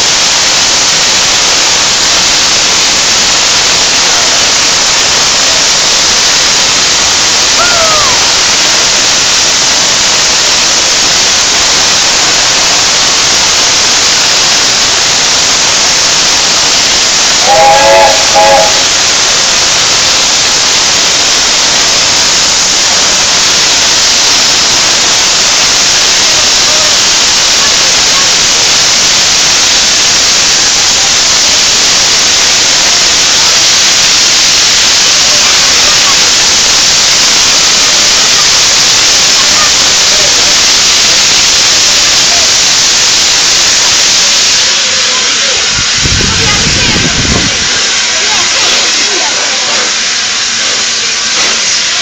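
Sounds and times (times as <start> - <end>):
steam venting hiss: 0.0 - 52.0
steam locomotive chime whistle: 16.8 - 19.4.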